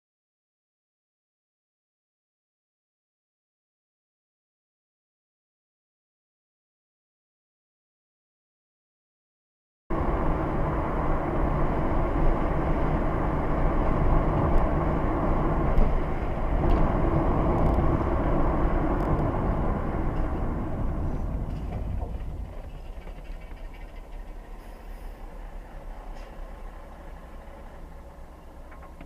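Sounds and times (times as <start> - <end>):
vehicle rumble and road noise: 9.9 - 29.0.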